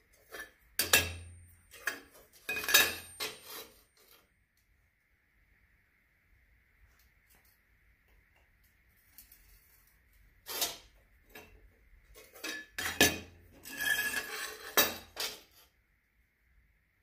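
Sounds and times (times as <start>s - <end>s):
metal plates clanking and scraping: 0.2s - 3.9s, 12.1s - 15.6s.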